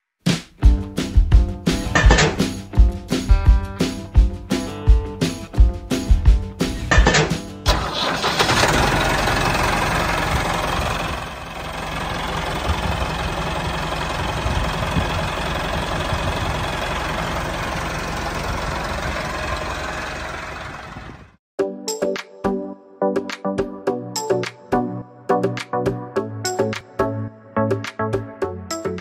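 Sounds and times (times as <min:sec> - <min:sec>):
tractor engine running: 0:00.6 - 0:21.4.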